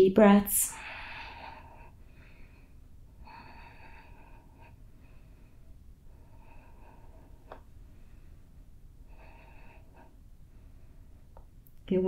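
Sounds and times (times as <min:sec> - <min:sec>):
slow deep breathing: 0:00.7 - 0:11.4.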